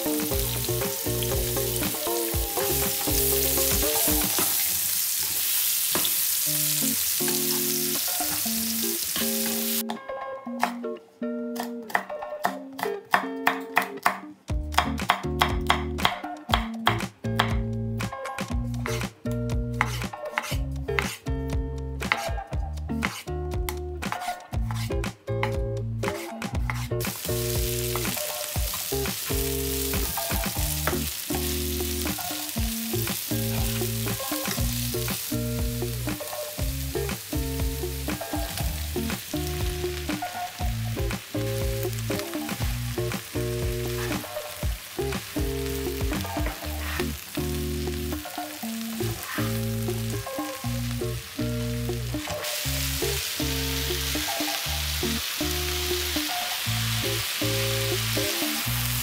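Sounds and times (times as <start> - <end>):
vegetables sizzling in oil: 0.0 - 9.8, 27.0 - 59.0
background music: 0.0 - 59.0.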